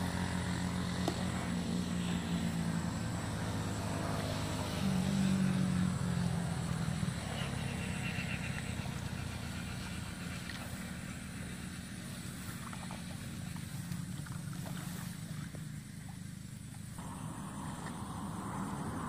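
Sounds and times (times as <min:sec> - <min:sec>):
wading through shallow pond: 0:00.0 - 0:19.0.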